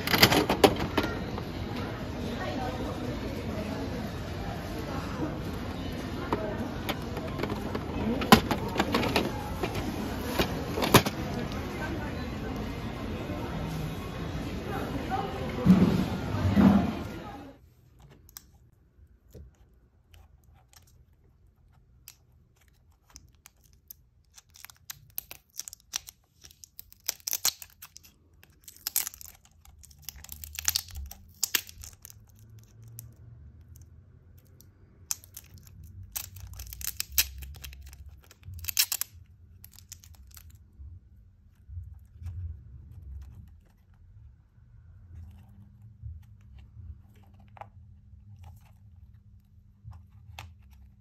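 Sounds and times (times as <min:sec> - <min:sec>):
plastic tape peeling and ripping: 0:19.3 - 0:40.8.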